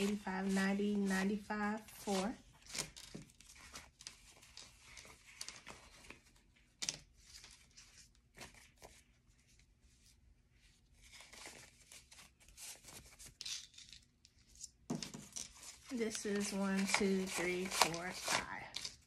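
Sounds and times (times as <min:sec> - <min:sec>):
banknotes rustling and snapping: 0:02.0 - 0:09.1, 0:11.0 - 0:19.0.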